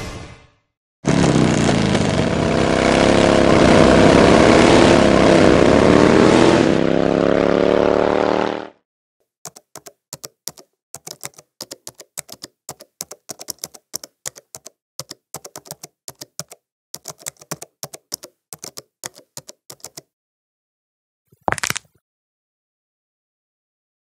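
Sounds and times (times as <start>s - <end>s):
laptop keyboard key clicks: 9.5s - 20.0s.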